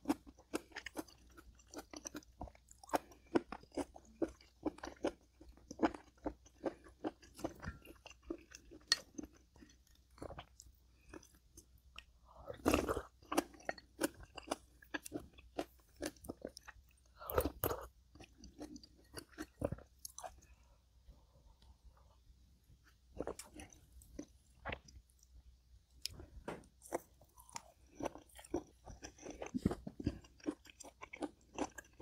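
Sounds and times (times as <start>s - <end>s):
crunchy chewing: 0.0s - 20.6s, 23.2s - 25.4s, 26.0s - 32.0s.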